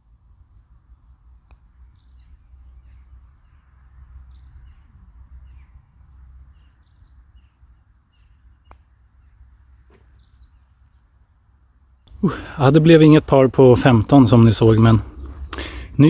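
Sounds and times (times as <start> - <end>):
small birds chirping: 0.4 - 12.7.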